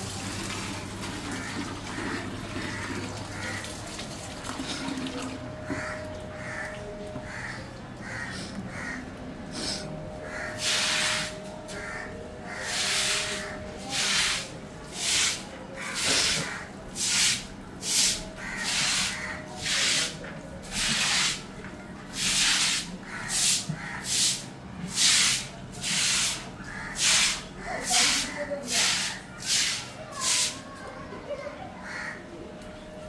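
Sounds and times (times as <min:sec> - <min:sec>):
broom sweeping water on concrete: 0:09.6 - 0:30.7.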